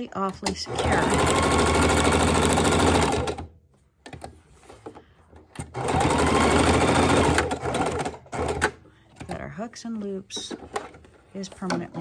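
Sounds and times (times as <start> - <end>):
sewing machine stitching: 0.4 - 3.5, 5.6 - 8.8.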